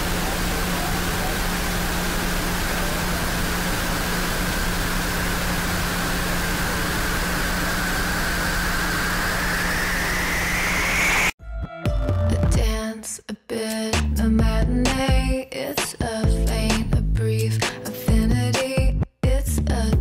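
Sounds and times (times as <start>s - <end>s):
static hiss: 0.0s - 11.3s
low hum: 0.0s - 11.4s
rising whistling tone: 7.7s - 11.4s.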